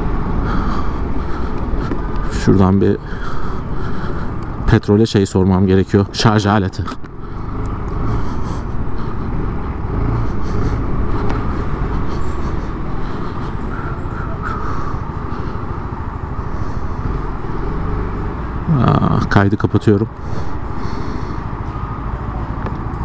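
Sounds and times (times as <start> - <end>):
motorcycle engine running: 0.0 - 4.6, 7.1 - 19.2
road and wind noise: 0.0 - 23.0.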